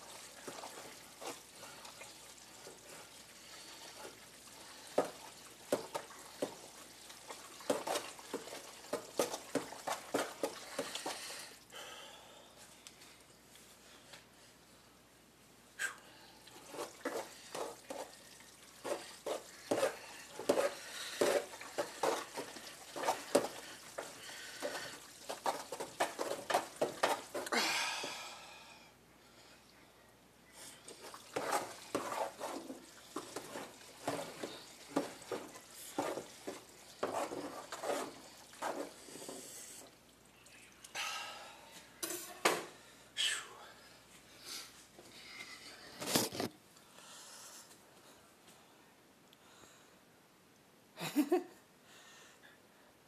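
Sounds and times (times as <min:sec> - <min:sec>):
spaghetti stirred in pot: 0:00.0 - 0:11.6, 0:16.4 - 0:28.2, 0:30.6 - 0:40.9.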